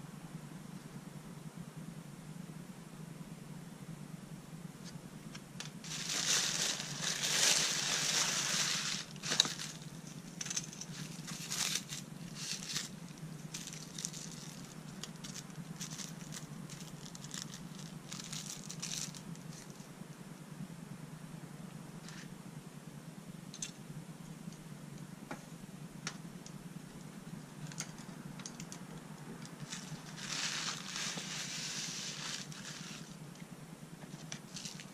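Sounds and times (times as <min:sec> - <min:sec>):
plastic bag crinkling: 0:05.8 - 0:19.8, 0:29.6 - 0:33.2
plastic wrapping rustling: 0:05.8 - 0:19.8, 0:29.6 - 0:33.2.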